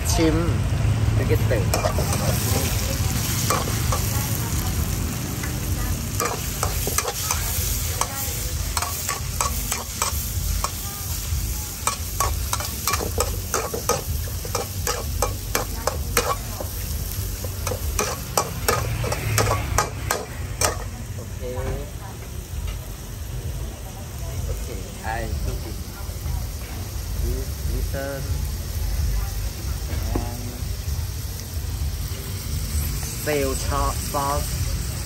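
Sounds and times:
frying sizzle: 0.0s - 35.0s
metal spatula scraping wok: 1.3s - 21.4s.

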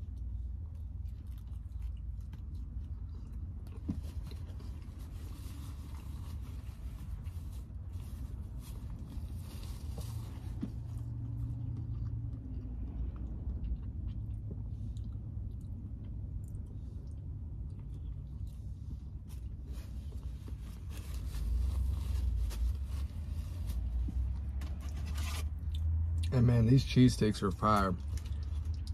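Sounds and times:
chewing and biting food: 0.0s - 20.6s, 27.7s - 28.9s
steady low hum: 0.0s - 28.9s.

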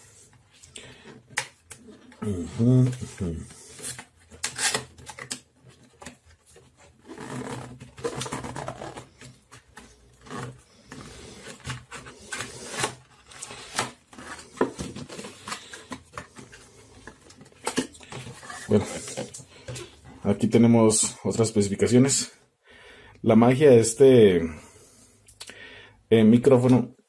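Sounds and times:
cardboard rustling and scraping: 2.6s - 20.2s.

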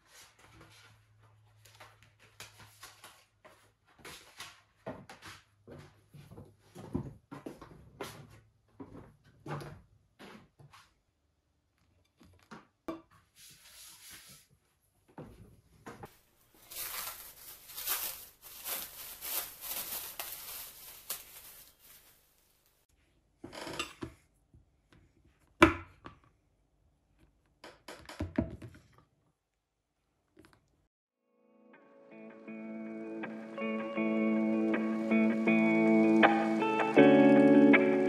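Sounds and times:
plastic wrapper crinkling: 16.4s - 22.8s.

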